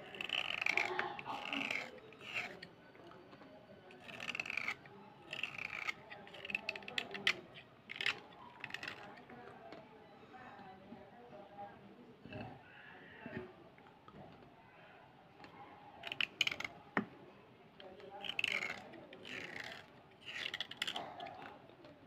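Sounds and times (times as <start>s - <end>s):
knife scraping pencil: 0.0s - 2.7s, 3.9s - 9.2s, 16.0s - 16.7s, 18.2s - 21.4s.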